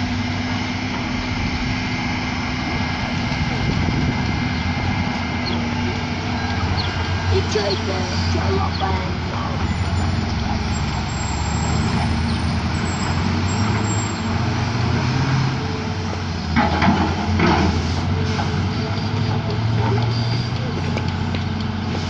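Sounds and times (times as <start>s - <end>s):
excavator engine drone: 0.0s - 22.0s.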